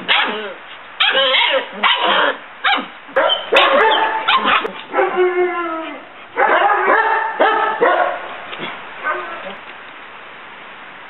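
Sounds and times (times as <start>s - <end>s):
puppies yipping and barking: 0.0s - 5.3s.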